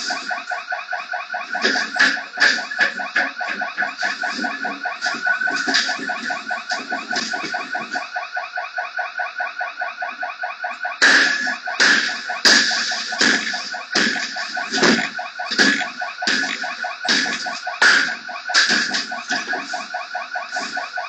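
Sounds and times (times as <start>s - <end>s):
electronic alarm pulsing tone: 0.0s - 21.0s
loud harsh noise bursts: 11.0s - 21.0s.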